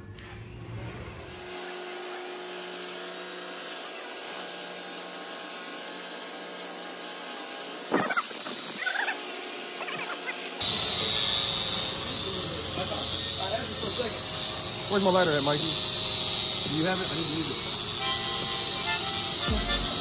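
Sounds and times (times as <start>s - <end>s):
angle grinder on metal: 1.2s - 20.0s.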